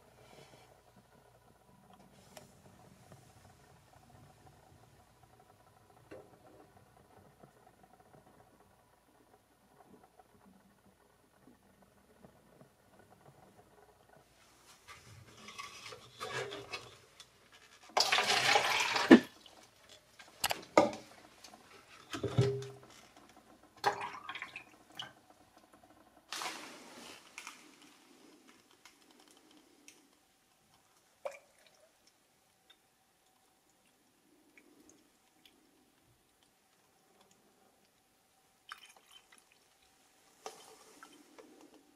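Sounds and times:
liquid pouring into plastic cup: 0:17.9 - 0:21.2, 0:38.7 - 0:41.7.

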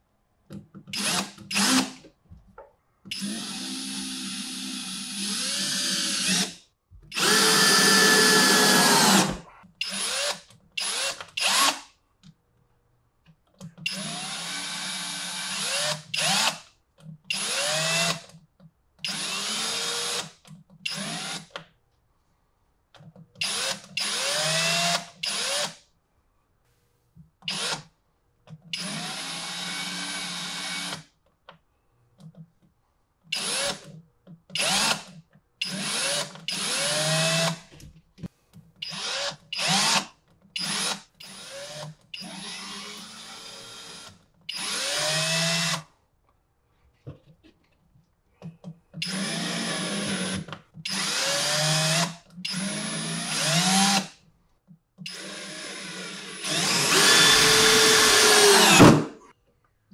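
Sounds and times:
power drill driving screws: 0:01.0 - 0:02.0, 0:03.1 - 0:11.8, 0:17.3 - 0:18.2, 0:19.1 - 0:20.3, 0:23.4 - 0:25.8, 0:28.8 - 0:31.0, 0:33.4 - 0:33.9, 0:34.6 - 0:37.6, 0:38.8 - 0:45.8, 0:49.0 - 0:54.1, 0:55.1 - 0:59.2.

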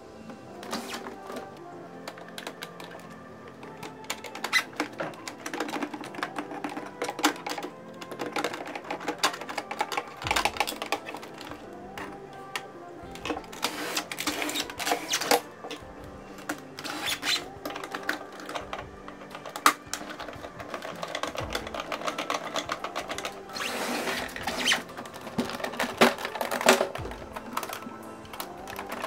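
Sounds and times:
background music with held tones: 0:00.0 - 0:29.0
plastic clicks and rattles: 0:00.2 - 0:29.0.

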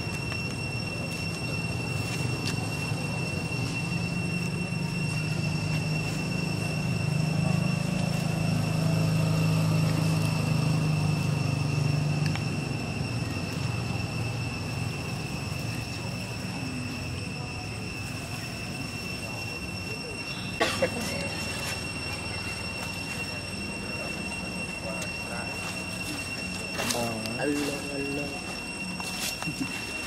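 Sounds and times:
distant vehicle engine drone: 0:00.0 - 0:30.0
thin high-pitched whine: 0:00.0 - 0:30.0.

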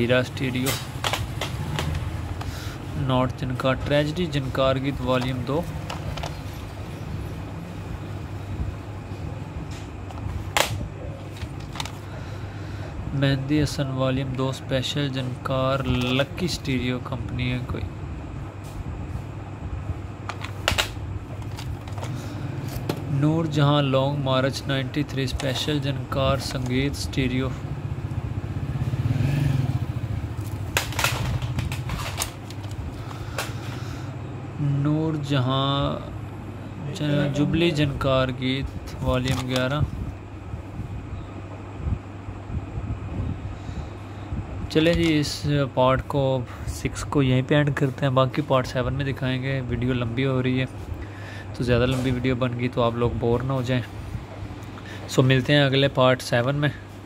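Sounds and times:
low mechanical rumble: 0:00.0 - 0:57.0
steady low hum: 0:00.0 - 0:57.0
plastic cassettes being handled: 0:00.6 - 0:02.5, 0:04.5 - 0:06.7, 0:10.1 - 0:12.2, 0:15.8 - 0:16.5, 0:20.2 - 0:23.2, 0:25.2 - 0:26.9, 0:30.4 - 0:33.8, 0:38.9 - 0:39.8, 0:44.8 - 0:45.3.

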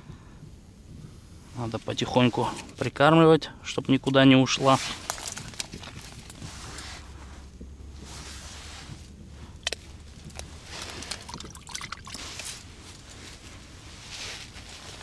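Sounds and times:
low steady rumble: 0:00.0 - 0:15.0
rustling of gear and clothing: 0:04.0 - 0:11.4, 0:12.1 - 0:15.0.

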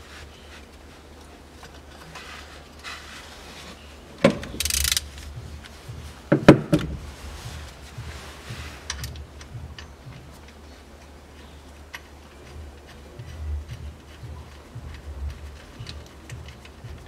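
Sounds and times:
scraping rattle: 0:03.3 - 0:05.4
metal tools clinking: 0:04.4 - 0:05.2, 0:08.8 - 0:10.6.

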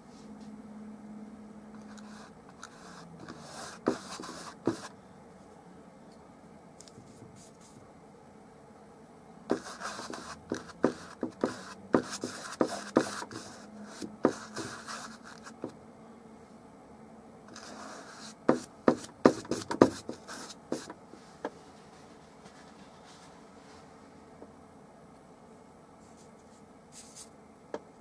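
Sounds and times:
bristle brush dabbing on canvas: 0:01.8 - 0:04.9, 0:09.5 - 0:15.7, 0:17.5 - 0:23.8.

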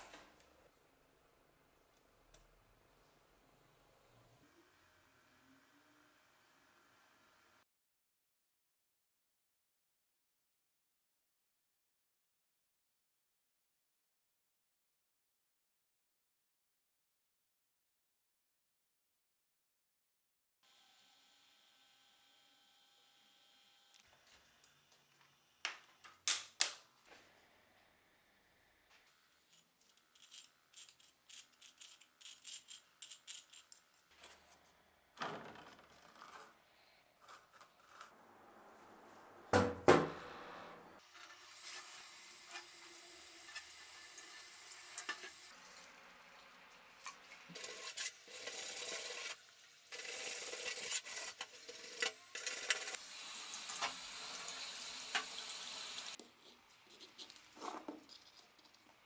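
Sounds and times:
knife scraping metal: 0:29.5 - 0:34.5, 0:37.2 - 0:38.2, 0:47.0 - 0:49.4
loud knock: 0:39.5 - 0:40.2
tap water running into sink: 0:52.5 - 0:56.2.

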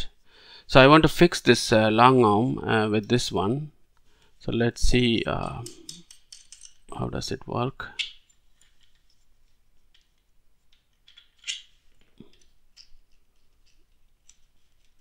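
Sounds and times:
plastic parts clicking and scraping: 0:05.3 - 0:06.9, 0:08.0 - 0:15.0.

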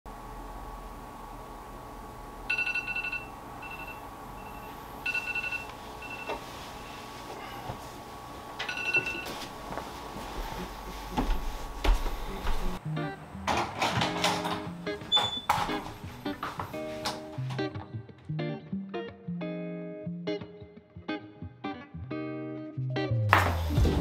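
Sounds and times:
phone alarm beeps: 0:02.5 - 0:06.4, 0:08.6 - 0:09.4.

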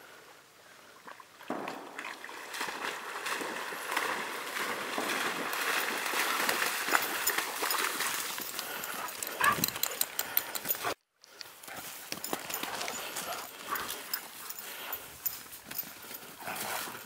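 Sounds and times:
dog splashing through water: 0:01.7 - 0:09.8.

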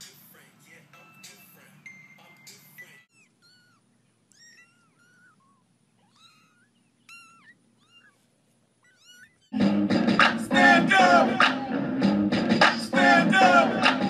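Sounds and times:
kittens mewing: 0:02.8 - 0:09.6
loud music: 0:09.6 - 0:14.0.

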